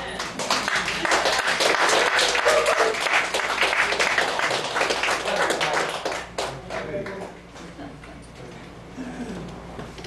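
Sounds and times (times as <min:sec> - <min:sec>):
crowd applauding: 0:00.1 - 0:07.4.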